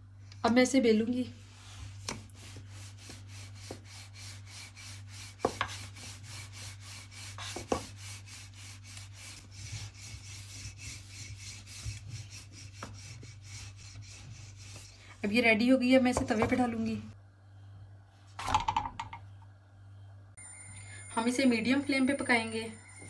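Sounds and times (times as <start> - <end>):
rolling pin rubbing dough: 1.0 - 16.8.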